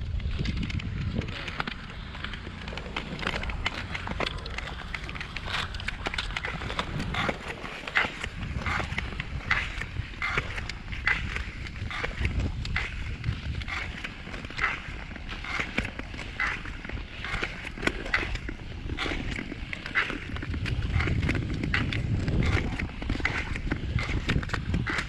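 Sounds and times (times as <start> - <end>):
low rumble: 0.0 - 15.4
skate blades scraping on ice: 0.0 - 25.0
ice clicks: 0.1 - 25.0.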